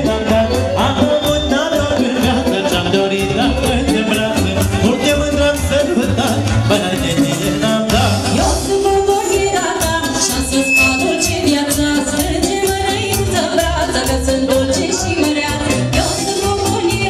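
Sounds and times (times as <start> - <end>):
live band playing folk dance music: 0.0 - 17.0
woman singing into microphone: 8.2 - 17.0.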